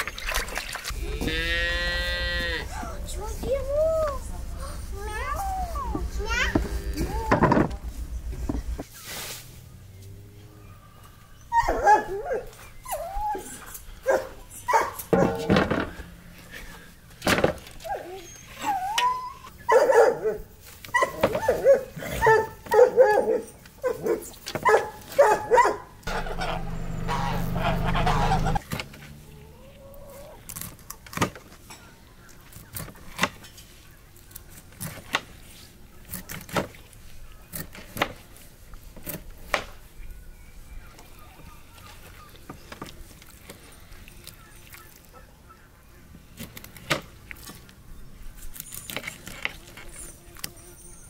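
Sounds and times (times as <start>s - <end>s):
dog whining and yipping: 11.4s - 15.0s, 17.8s - 25.8s.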